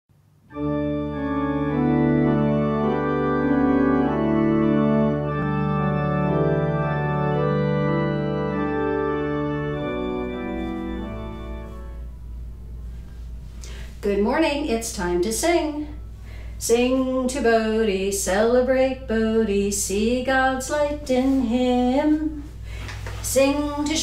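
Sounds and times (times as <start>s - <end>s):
organ chords: 0.2s - 14.0s.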